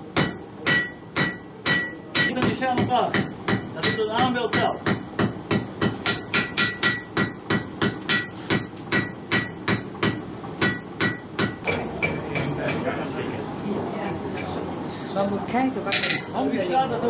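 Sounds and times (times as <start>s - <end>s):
hammer ringing on anvil: 0.2s - 12.8s.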